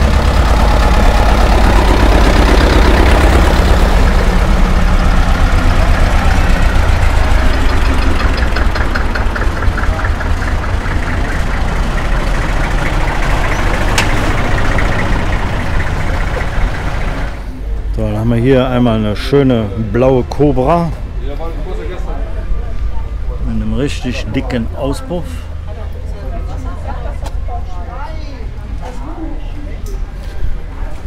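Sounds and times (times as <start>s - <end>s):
tractor engines chugging: 0.0s - 31.0s.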